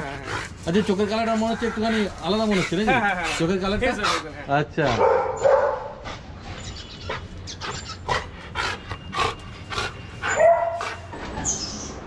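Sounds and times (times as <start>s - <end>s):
dog panting: 0.0s - 11.4s.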